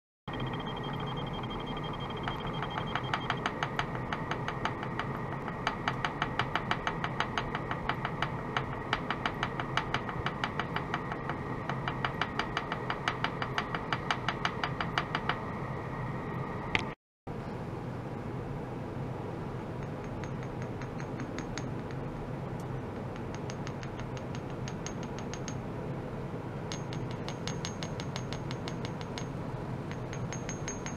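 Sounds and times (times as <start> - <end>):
faint steady high tone: 0.3 - 3.6.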